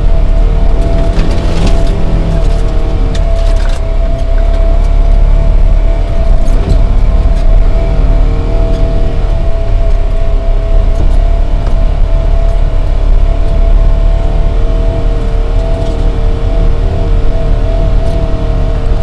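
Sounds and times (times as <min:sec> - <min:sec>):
constant whine: 0:00.0 - 0:19.0
lower whine: 0:00.0 - 0:19.0
vehicle engine drone: 0:00.0 - 0:19.0.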